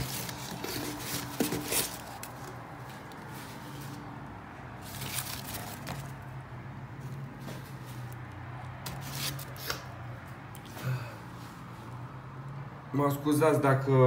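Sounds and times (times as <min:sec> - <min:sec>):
cardboard and plastic rustling: 0:00.0 - 0:04.1, 0:04.8 - 0:06.4, 0:08.8 - 0:09.9.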